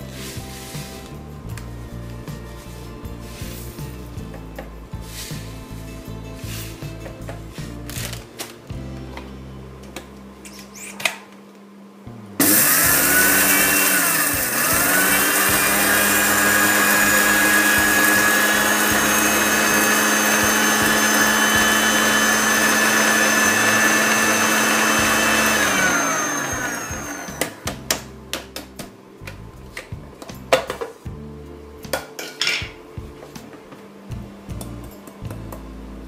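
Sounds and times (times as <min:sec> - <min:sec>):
electric mixer grinder whining: 0:12.4 - 0:27.8.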